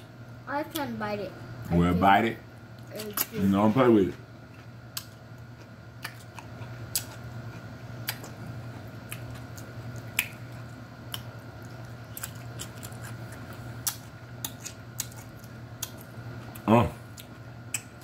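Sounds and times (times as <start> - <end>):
crunchy vegetable chewing: 4.4 - 18.0.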